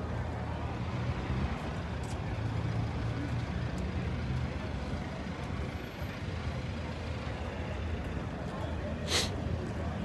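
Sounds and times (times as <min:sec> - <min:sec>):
passing car traffic rumble: 0:00.0 - 0:10.0.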